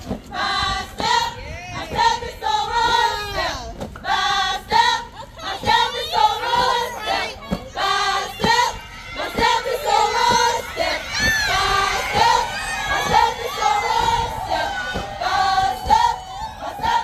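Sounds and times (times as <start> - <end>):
women singing and chanting: 0.0 - 17.0
crowd shouting: 4.2 - 17.0.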